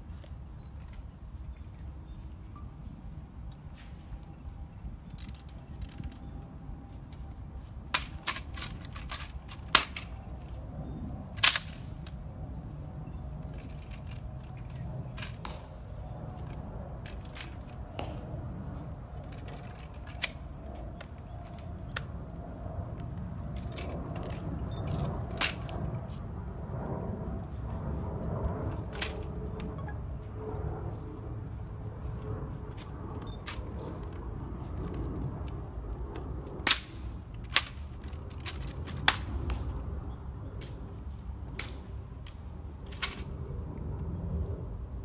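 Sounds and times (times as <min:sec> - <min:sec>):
metallic rifle clicks: 0:05.0 - 0:06.3, 0:07.9 - 0:10.6, 0:11.4 - 0:12.2, 0:13.4 - 0:18.0, 0:19.1 - 0:22.2, 0:23.0 - 0:25.8, 0:28.8 - 0:29.8, 0:36.7 - 0:39.7, 0:41.6 - 0:43.3.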